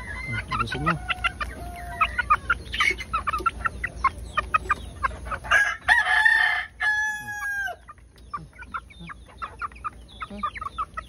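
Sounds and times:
rooster crowing: 0:00.0 - 0:02.5, 0:05.5 - 0:07.8
chickens clucking: 0:00.0 - 0:11.0
chickens pecking grain: 0:00.0 - 0:11.0.

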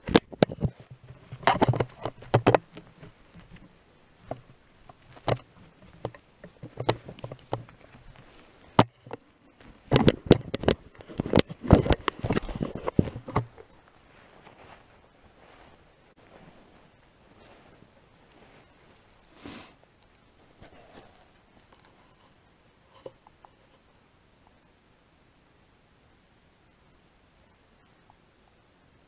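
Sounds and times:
fabric rustling: 0:00.0 - 0:23.7
camera handling knocks and clicks: 0:09.9 - 0:13.6.

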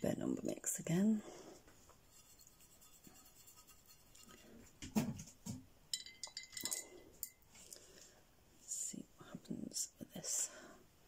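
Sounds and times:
brush clinking against glass jar: 0:05.9 - 0:07.4.

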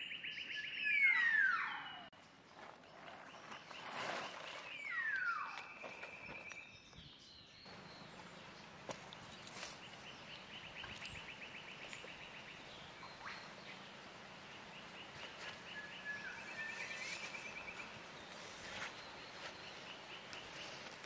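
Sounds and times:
tarp rustling and clicks: 0:02.5 - 0:06.6, 0:07.7 - 0:21.0
rapid pulsing wildlife trill: 0:07.7 - 0:21.0.

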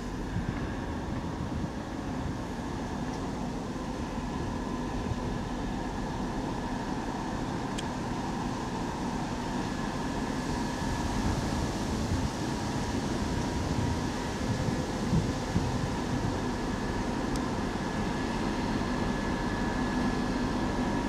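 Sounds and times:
diesel locomotive engine rumbling: 0:00.0 - 0:21.0.

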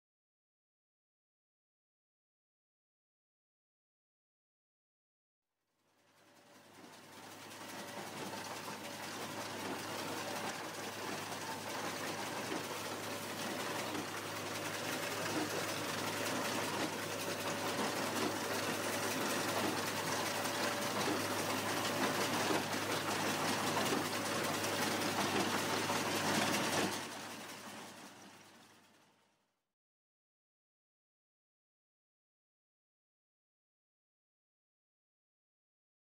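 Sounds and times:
baler mechanical clatter: 0:06.3 - 0:29.0
tractor engine: 0:06.3 - 0:29.0.

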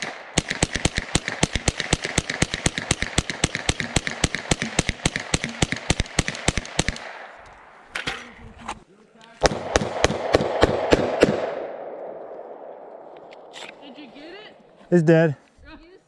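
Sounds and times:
rapid gunshots: 0:00.0 - 0:07.3, 0:09.4 - 0:11.8.

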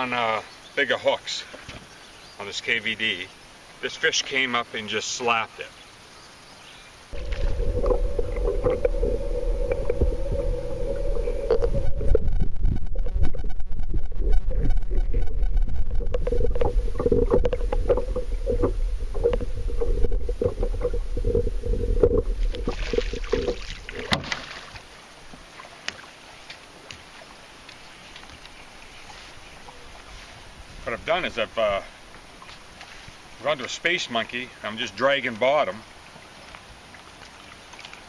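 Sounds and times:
underwater low rumble and hum: 0:07.1 - 0:24.2.

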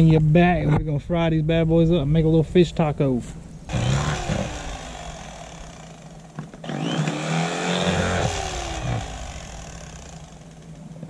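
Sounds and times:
motor running: 0:03.7 - 0:10.8.

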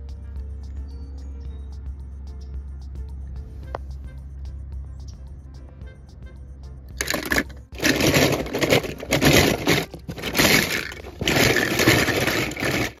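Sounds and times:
toy cars clattering in plastic tub: 0:07.0 - 0:13.0.

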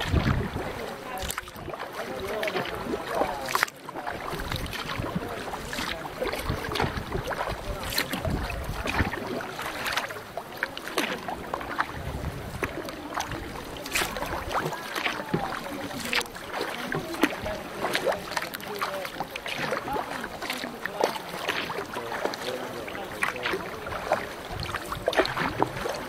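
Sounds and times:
wind rumbling on microphone: 0:00.0 - 0:01.8, 0:04.2 - 0:09.9, 0:11.5 - 0:14.7, 0:23.8 - 0:26.0
paddles splashing in water: 0:00.0 - 0:26.0
water rushing: 0:00.0 - 0:26.0.

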